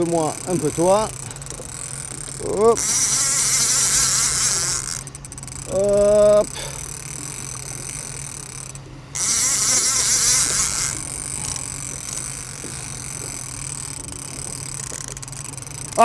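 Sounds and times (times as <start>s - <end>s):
boat engine humming: 0.0s - 16.0s
fishing reel whirring: 0.0s - 16.0s
wind: 0.0s - 16.0s.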